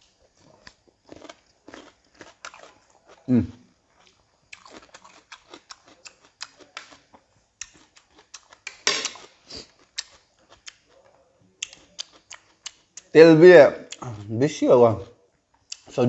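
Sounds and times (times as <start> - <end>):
wet chewing and lip-smacking: 0.0 - 13.1, 15.5 - 16.0
metal tongs clattering on dish: 8.8 - 9.2.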